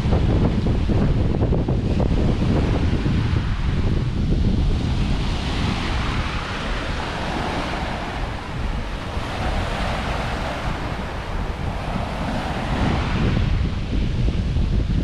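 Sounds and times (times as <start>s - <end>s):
ocean waves: 0.0s - 15.0s
wind buffeting microphone: 0.0s - 15.0s.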